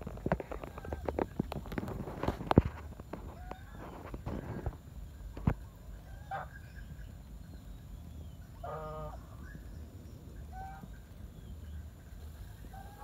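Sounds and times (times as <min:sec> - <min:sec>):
geese honking: 0:06.0 - 0:06.8, 0:08.5 - 0:09.5, 0:10.4 - 0:11.2, 0:12.6 - 0:13.0.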